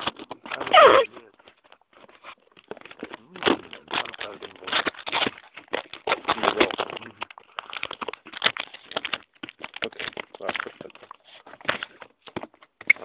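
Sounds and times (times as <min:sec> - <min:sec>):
phone rubbing against foam: 0:00.7 - 0:01.2.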